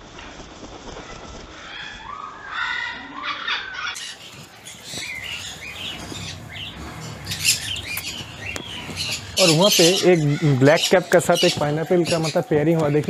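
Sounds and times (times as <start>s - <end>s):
wing flaps: 0.0s - 2.1s, 4.0s - 11.8s
parrots squawking and chirping: 1.6s - 13.0s.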